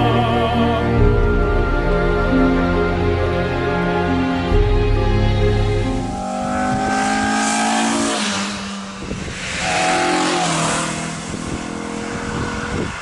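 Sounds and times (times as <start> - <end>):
car engine revving past: 5.8 - 13.0.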